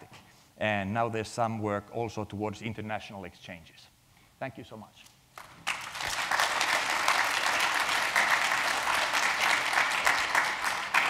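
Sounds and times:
audience applauding: 5.4 - 11.0.

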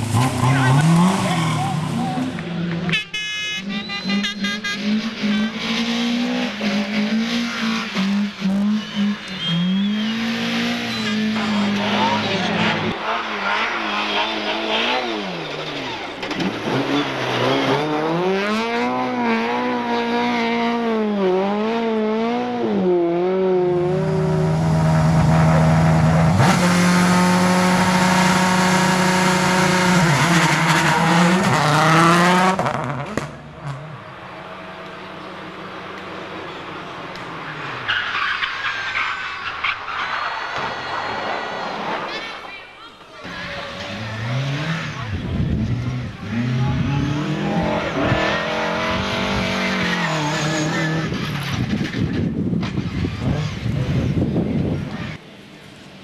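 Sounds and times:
rally car engine revving: 0.0 - 2.8, 3.7 - 38.0, 43.2 - 55.2.

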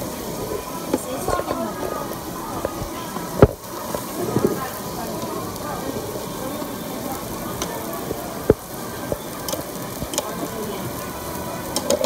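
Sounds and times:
meat sizzling on grill: 0.0 - 12.0.

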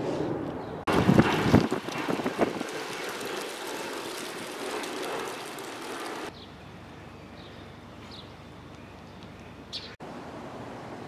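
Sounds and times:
outdoor background hiss: 0.6 - 11.0.

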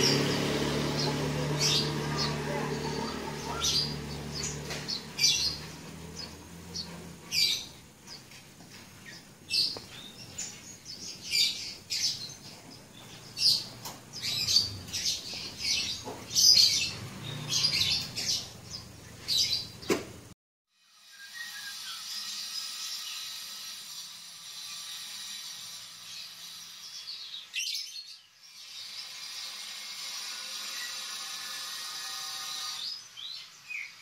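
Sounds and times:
birds chirping: 0.0 - 20.3, 26.0 - 29.7.

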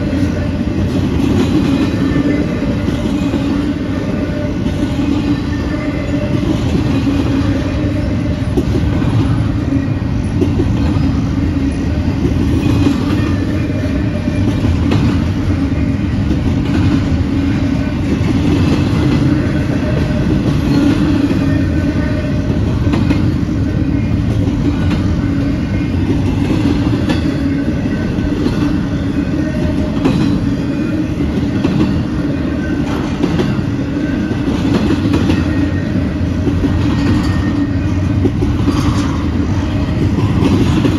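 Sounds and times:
freight train rumbling past: 0.0 - 40.9
train wheels clacking: 0.0 - 40.9.

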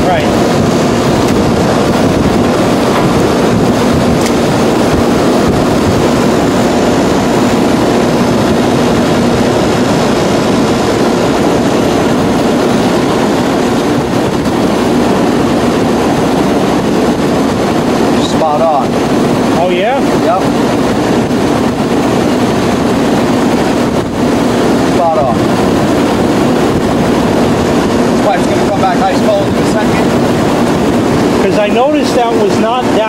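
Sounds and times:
fan blowing air: 0.0 - 33.0
low hum from unit: 0.0 - 33.0.

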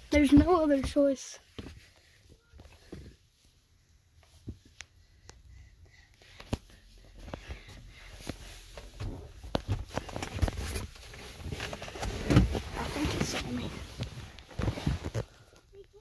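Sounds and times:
rustling and bumping: 7.2 - 15.3.

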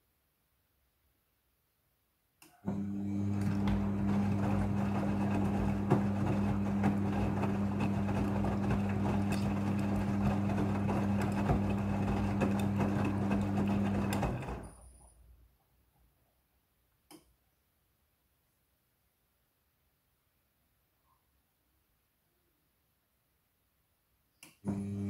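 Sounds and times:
washing machine drum humming: 2.7 - 14.7
wet laundry tumbling: 3.1 - 14.6.

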